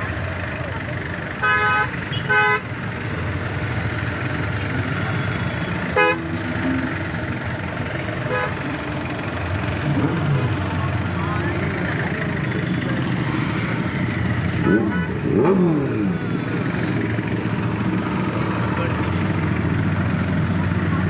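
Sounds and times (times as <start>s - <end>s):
hum of traffic engines: 0.0s - 21.0s
vehicle horns honking: 1.3s - 2.8s, 5.0s - 6.6s, 8.2s - 8.8s, 14.6s - 17.0s.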